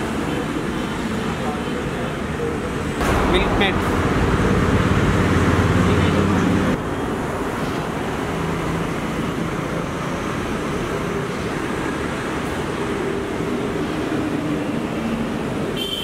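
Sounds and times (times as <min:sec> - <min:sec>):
street traffic: 0:00.0 - 0:16.0
low hum: 0:03.0 - 0:06.9.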